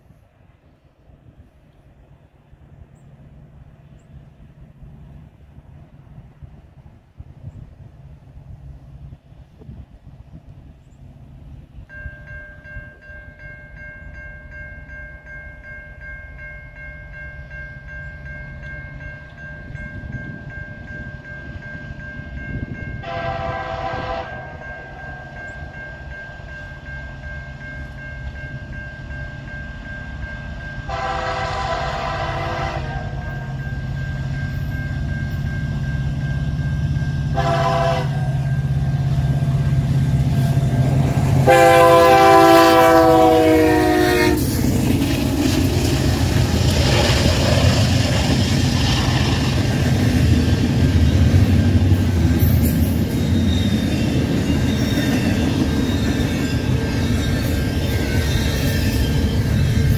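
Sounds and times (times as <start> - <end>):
diesel locomotive rumble: 17.1 - 59.9
train air horn blasts: 22.9 - 25.1, 30.9 - 33.6, 37.3 - 38.7, 41.3 - 44.6
train wheels clacking over rails: 39.1 - 59.9.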